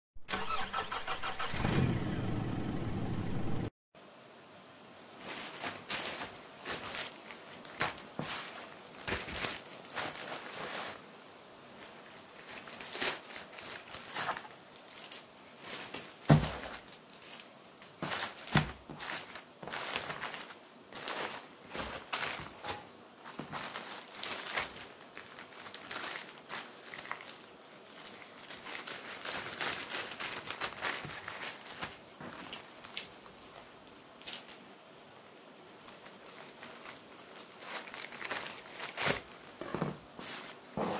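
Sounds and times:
plastic bags crinkling: 5.2s - 11.1s, 11.7s - 34.6s, 35.8s - 40.7s
package thump: 16.3s - 16.7s.

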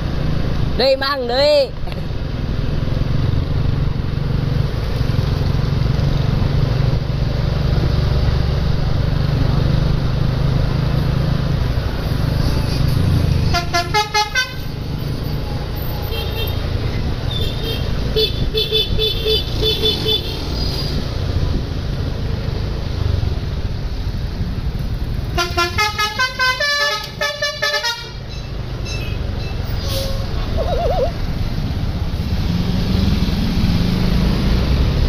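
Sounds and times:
bus engine rumbling: 0.0s - 35.0s
musical air horn notes: 25.4s - 28.2s.

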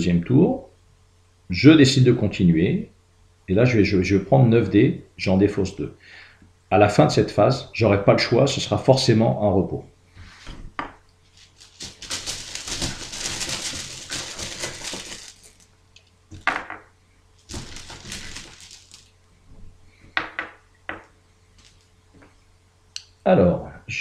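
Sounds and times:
dice rattling in cloth bag: 11.4s - 15.7s, 17.5s - 19.1s.

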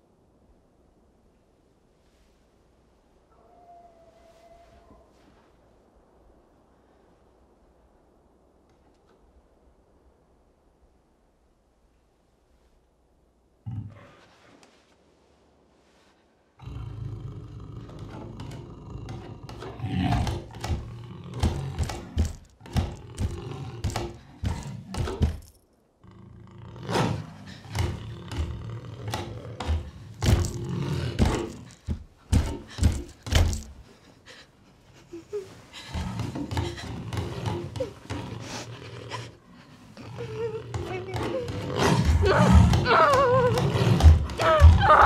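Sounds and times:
beast growling and roaring: 16.6s - 25.2s, 26.0s - 33.4s, 35.8s - 45.0s
heavy thuds and banging: 27.6s - 33.8s.

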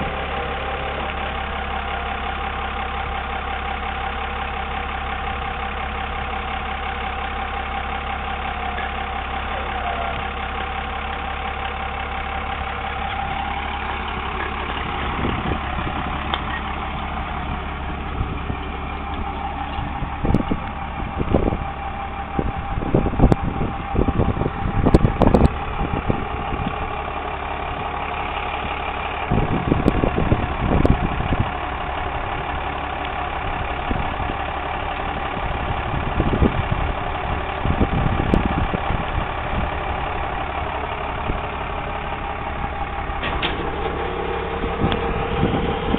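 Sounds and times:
diesel engine idling: 0.0s - 45.9s
low thumps and rumbles: 10.2s - 45.9s
steady whine: 41.6s - 45.9s.

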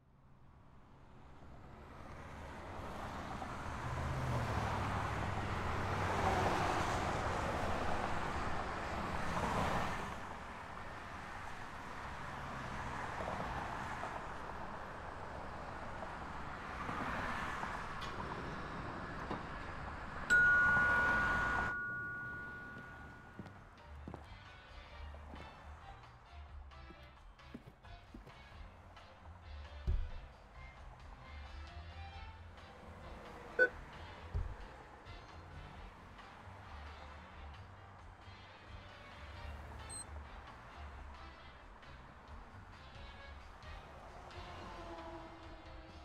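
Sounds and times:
two-tone electronic chime: 20.3s - 23.4s.

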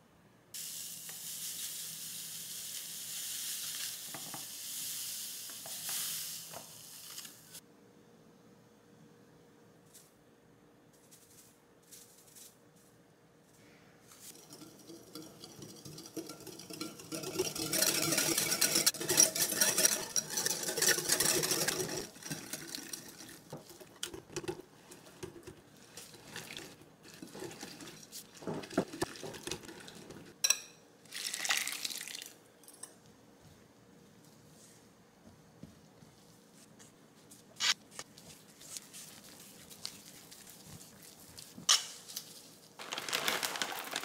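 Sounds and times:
whisk rattling in glass bowl: 14.2s - 30.3s
liquid pouring: 31.1s - 32.4s.

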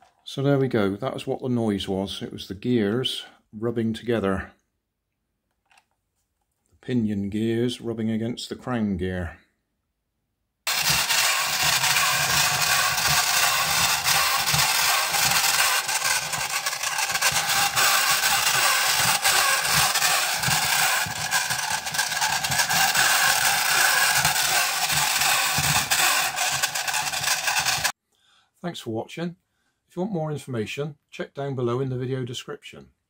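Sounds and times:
toy robot gearbox grinding: 10.7s - 27.9s.

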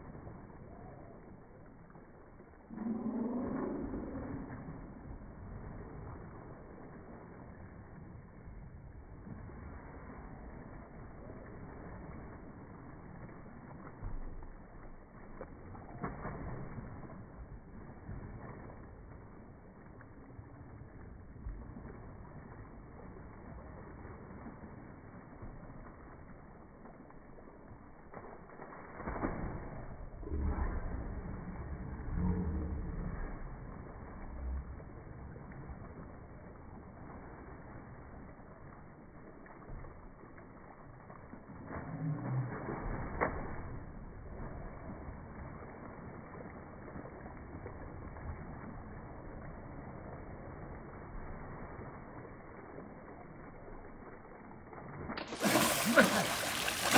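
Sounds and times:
slowed water splashing rumble: 0.0s - 56.9s
sharp water slap: 28.1s - 30.9s, 41.7s - 43.8s, 55.2s - 56.9s.

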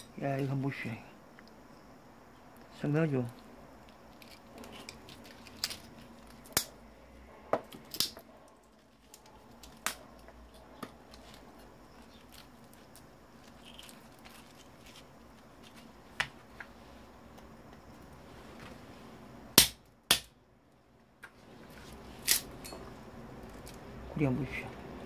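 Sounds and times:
hand tools snapping and clicking: 4.2s - 6.7s, 7.7s - 8.2s, 22.2s - 22.8s.

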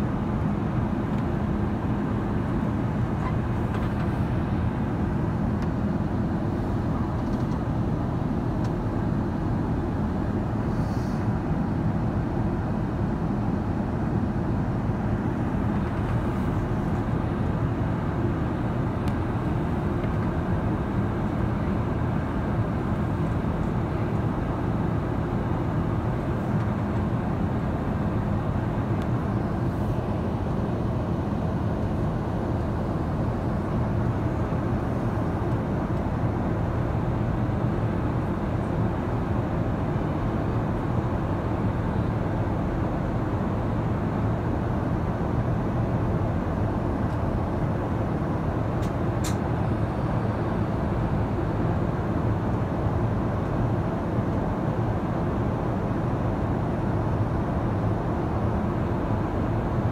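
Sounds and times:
jet engine hum: 0.0s - 59.9s.

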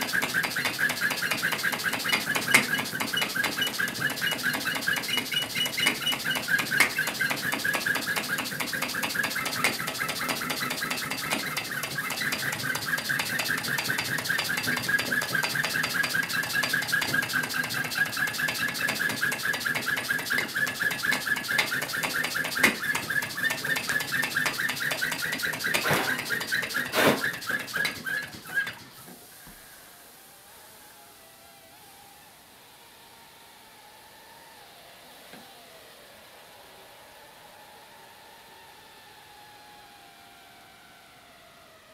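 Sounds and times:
model steam engine ticking: 0.0s - 29.0s
wavering high squeak: 0.1s - 28.8s.

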